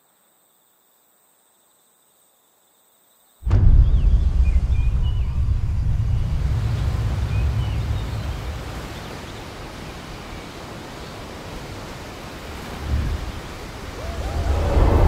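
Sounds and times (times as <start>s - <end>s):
low rumble: 3.5s - 9.0s, 14.0s - 15.0s
ocean surf rushing hiss: 3.5s - 15.0s.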